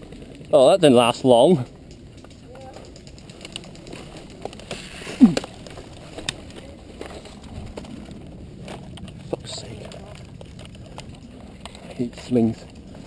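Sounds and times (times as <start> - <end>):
gear knocking: 0.9 - 7.9
brush rustling: 1.7 - 13.0.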